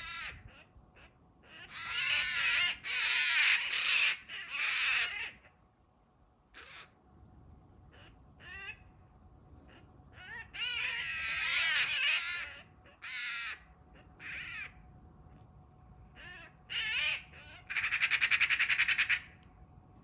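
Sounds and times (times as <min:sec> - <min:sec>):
magpie rattling chatter: 0:00.0 - 0:05.5, 0:10.1 - 0:14.7, 0:16.3 - 0:19.4
magpies screeching squawks: 0:00.0 - 0:05.6, 0:06.5 - 0:07.0, 0:07.9 - 0:08.9, 0:09.6 - 0:14.8, 0:16.1 - 0:19.4.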